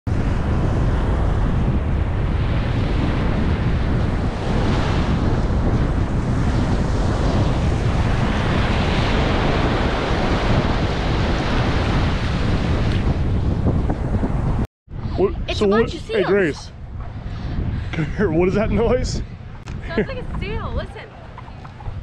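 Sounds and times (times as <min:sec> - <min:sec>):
ocean waves breaking: 0:00.1 - 0:14.6, 0:19.8 - 0:22.0
wind rumbling on microphone: 0:00.1 - 0:22.0.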